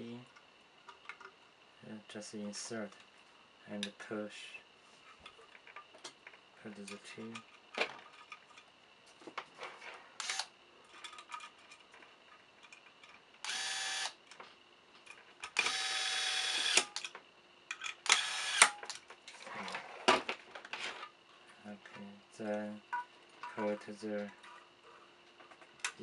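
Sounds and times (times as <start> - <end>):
electric screwdriver running: 10.2 - 10.5, 13.4 - 14.2, 15.6 - 17.0, 18.1 - 18.8.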